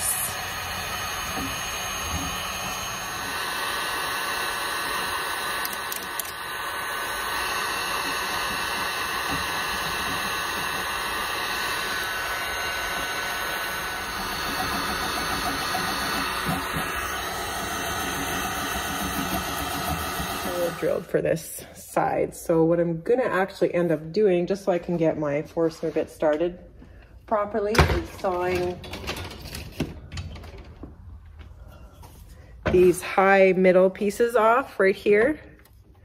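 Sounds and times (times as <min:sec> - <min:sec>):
heat gun fan blowing: 0:00.0 - 0:21.4.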